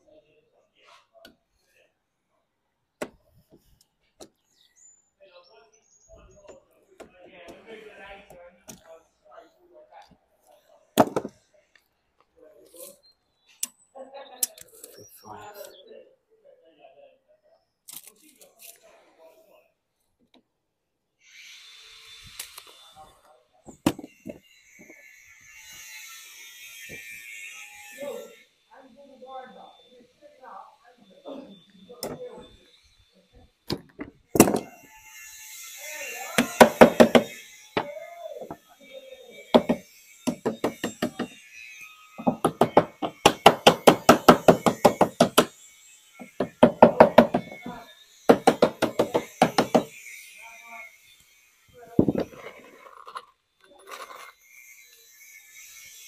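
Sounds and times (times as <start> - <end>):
hammer tapping a chisel: 36.4 - 38.6, 39.6 - 41.4, 42.2 - 45.5, 46.2 - 49.9
short knocks: 48.3 - 49.9.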